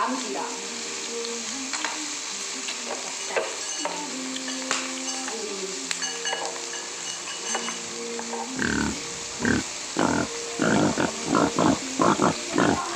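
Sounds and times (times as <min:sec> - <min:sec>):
prawn shell crackling: 0:08.6 - 0:12.9.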